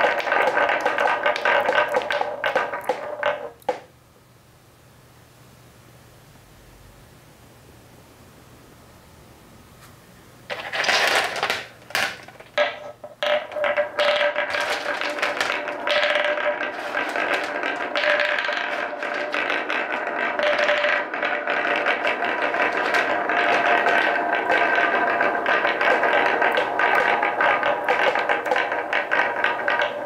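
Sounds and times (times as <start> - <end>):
marbles rattling through wooden track: 0.0 - 3.9, 10.5 - 30.0.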